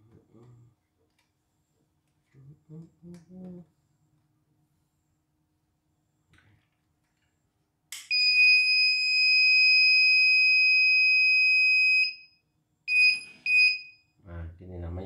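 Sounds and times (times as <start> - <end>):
long high machine beep: 12.9 - 14.0.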